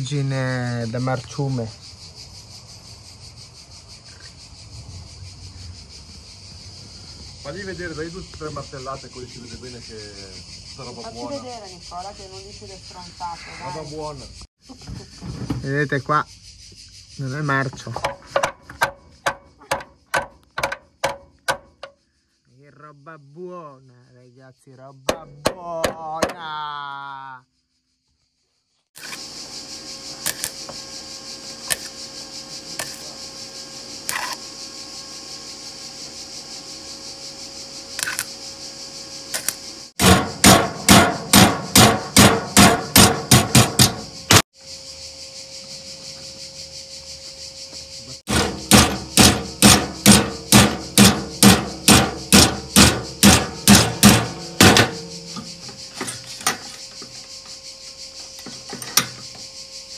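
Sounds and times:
hammer striking metal bodywork: 18.4 - 21.9, 40.0 - 44.4, 48.3 - 56.6
steady hum: 29.2 - 59.8.

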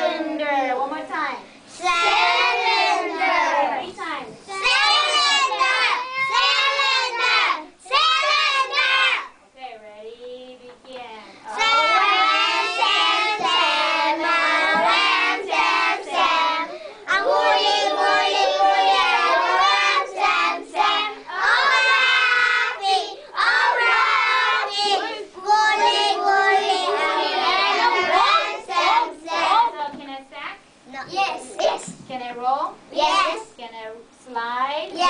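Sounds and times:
children singing together: 1.8 - 3.8, 4.5 - 9.3, 11.5 - 29.6.

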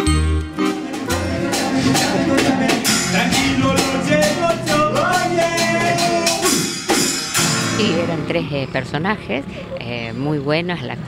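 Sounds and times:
acoustic guitar: 0.0 - 11.0
percussive beat: 0.5 - 7.9
person singing: 0.6 - 6.7.

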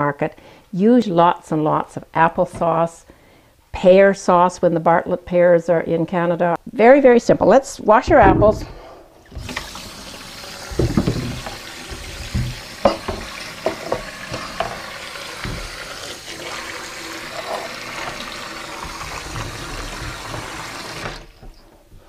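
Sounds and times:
knocks and thumps: 8.0 - 9.6, 10.6 - 15.8, 17.4 - 22.0
tap running into steel sink: 9.4 - 16.1.

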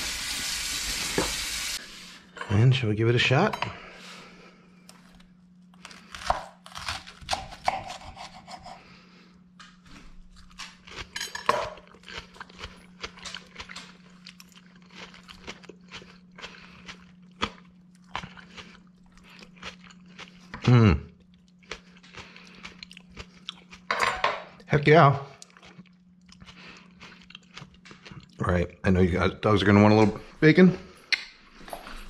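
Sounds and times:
lettuce crunching: 9.8 - 23.9.

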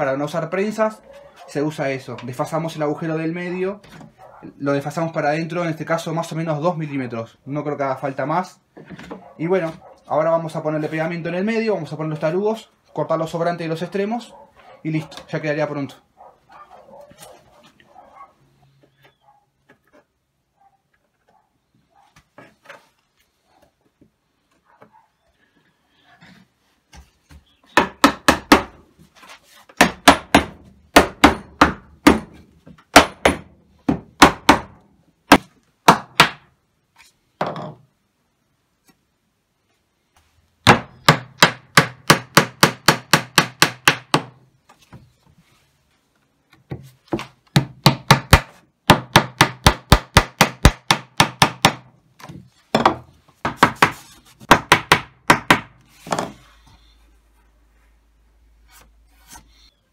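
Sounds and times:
mallet knocking wood: 29.8 - 32.3, 32.9 - 36.4, 40.6 - 44.3, 47.2 - 51.8.

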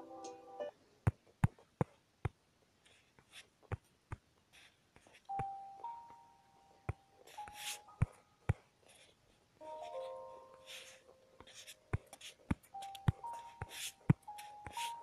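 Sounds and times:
held notes: 0.0 - 0.8, 9.6 - 15.0.

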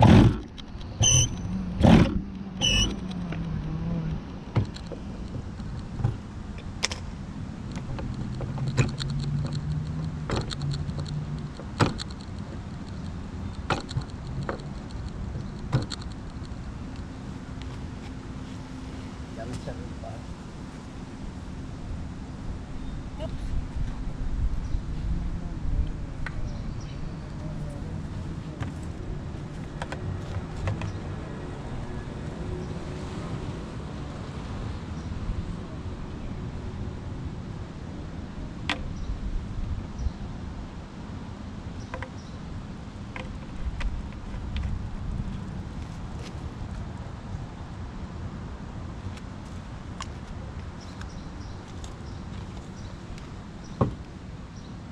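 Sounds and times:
low outdoor rumble: 0.0 - 54.9
handling clicks and knocks: 7.7 - 17.1.

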